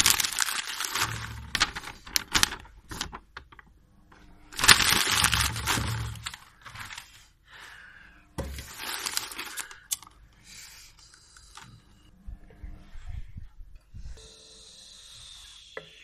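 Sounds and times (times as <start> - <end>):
paper crumpling and tearing: 0.0 - 3.5, 4.6 - 7.2, 8.6 - 10.0.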